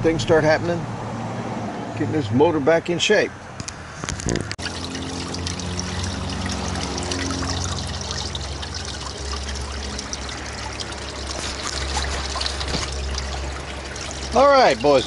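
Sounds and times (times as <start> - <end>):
water trickling and splashing: 4.2 - 15.0
steady low hum: 4.6 - 15.0.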